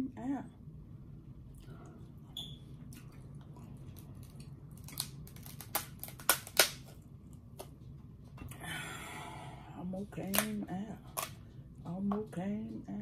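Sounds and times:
crab shell cracking: 4.0 - 7.0.

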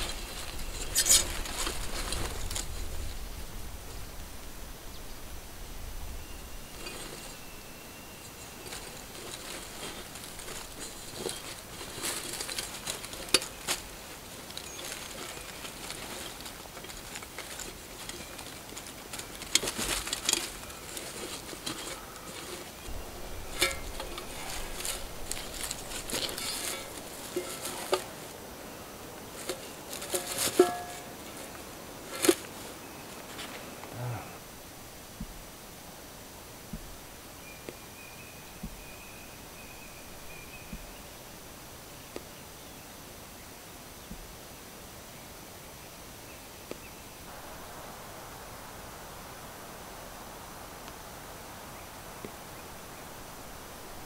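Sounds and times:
plastic bag crinkling: 8.6 - 28.4.

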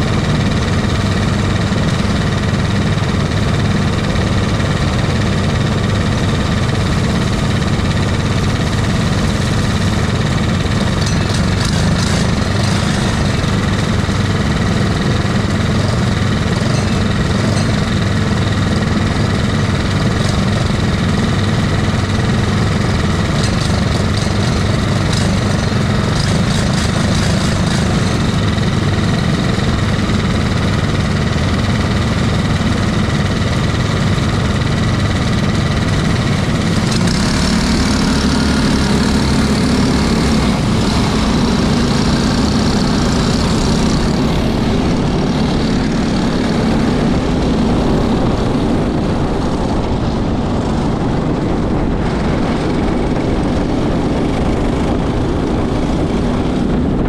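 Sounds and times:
go-kart engine idling: 0.0 - 57.0.

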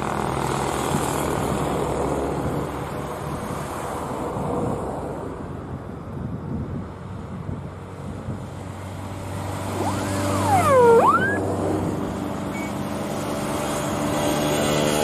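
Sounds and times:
sliding pitched tone: 9.7 - 11.5.

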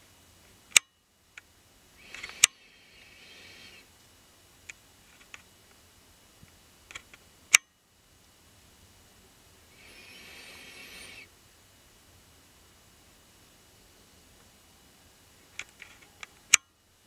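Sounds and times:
soft hiss-like rustle: 0.0 - 17.0
faint ticks: 0.4 - 7.8, 15.4 - 16.8
sharp clicks: 0.7 - 3.9, 6.9 - 7.8, 15.5 - 16.8.

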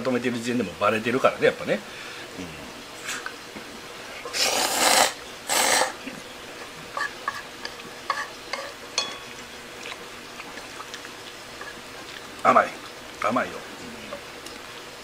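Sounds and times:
slurping noodles: 4.3 - 6.0.

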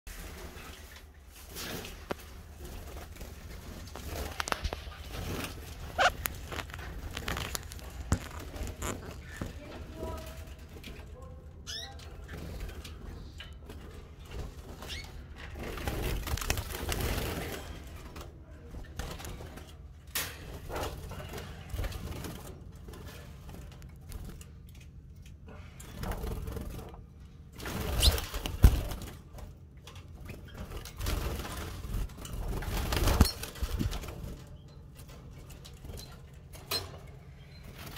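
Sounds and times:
wings fluttering: 0.1 - 11.0, 11.7 - 18.2, 26.0 - 29.5, 30.2 - 34.5
canary calls: 4.8 - 7.8, 11.7 - 12.0.

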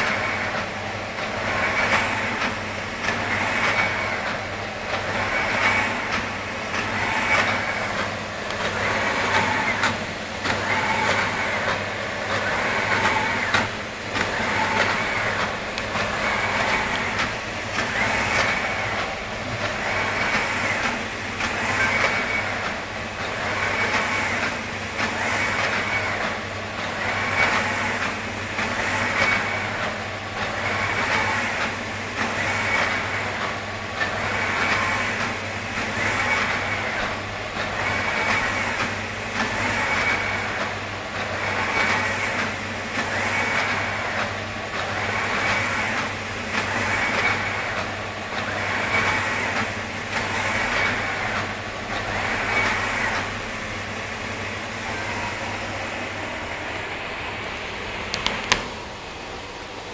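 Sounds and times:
machine low hum: 0.0 - 59.9
printer carriage moving back and forth: 0.0 - 59.9.

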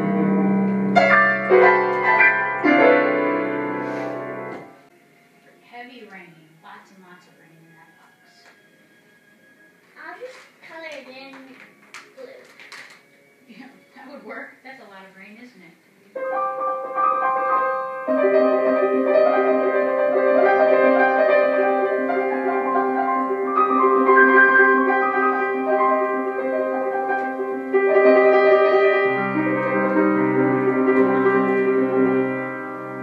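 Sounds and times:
low piano bass notes: 0.0 - 4.8, 16.3 - 33.0
piano chords: 0.0 - 5.9, 16.1 - 33.0.

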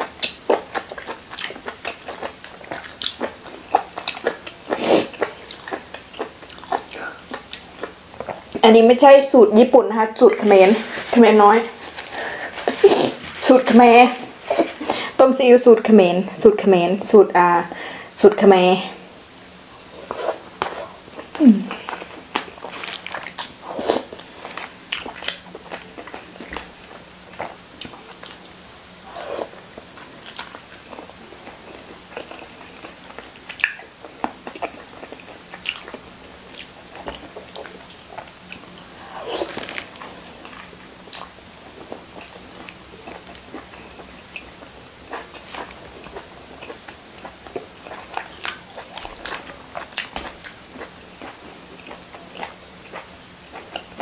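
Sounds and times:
person chewing: 0.0 - 8.6, 19.9 - 54.0.

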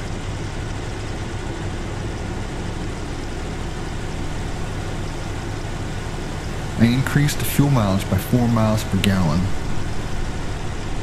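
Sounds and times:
car engine at fast idle: 0.0 - 11.0.

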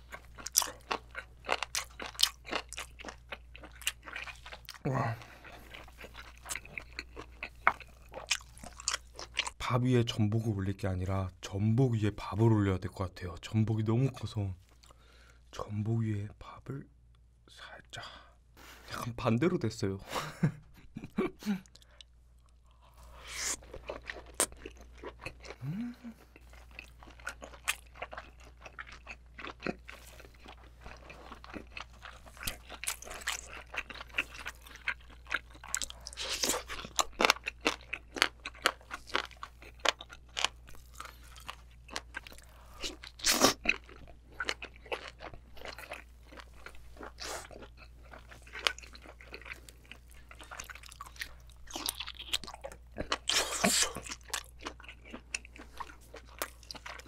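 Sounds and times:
wet chewing with crunchy clicks: 0.0 - 9.6, 21.6 - 57.0.

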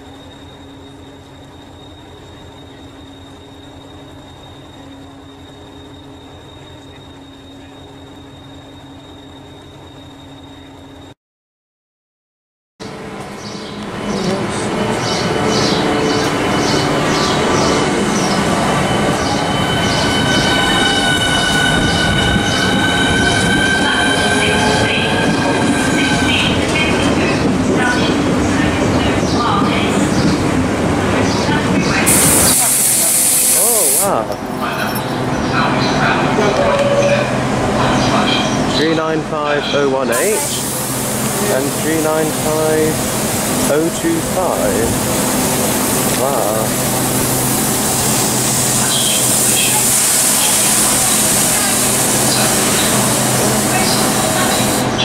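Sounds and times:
electric train whine: 0.0 - 11.2, 12.8 - 55.0
train wheels rumbling on rails: 12.8 - 55.0.

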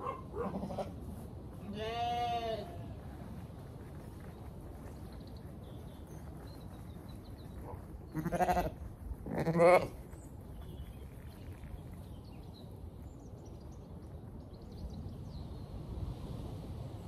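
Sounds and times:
sheep bleating: 1.6 - 2.9, 8.1 - 10.0.

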